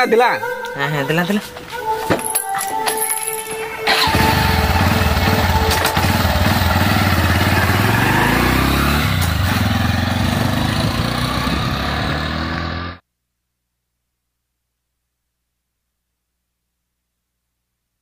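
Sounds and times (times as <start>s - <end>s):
motorcycle engine starting and accelerating: 3.8s - 13.0s.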